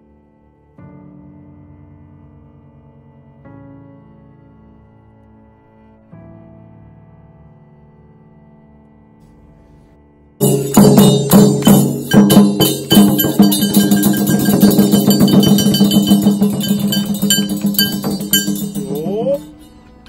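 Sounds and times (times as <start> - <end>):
barrel drum struck with stick: 10.4 - 19.3
bright metallic ringing: 10.4 - 20.0.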